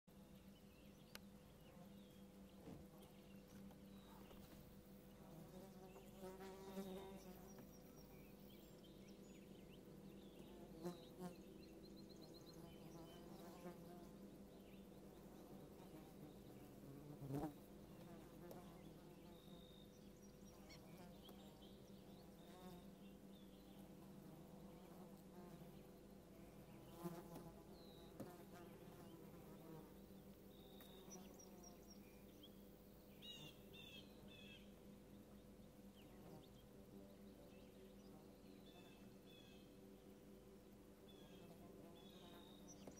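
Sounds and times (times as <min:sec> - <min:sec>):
flying insects buzzing: 0:02.7 - 0:19.6.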